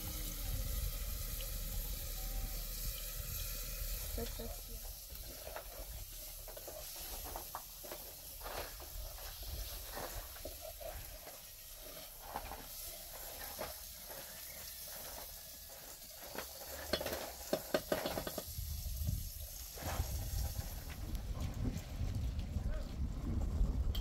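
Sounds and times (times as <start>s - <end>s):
food sizzling in a pan: 0.0s - 20.8s
utensil scraping against pan: 5.1s - 18.5s.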